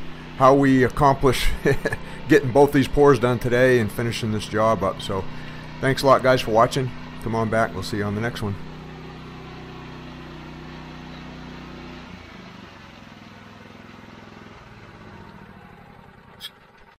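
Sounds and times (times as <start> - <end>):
power trowel engine running: 0.0 - 17.0.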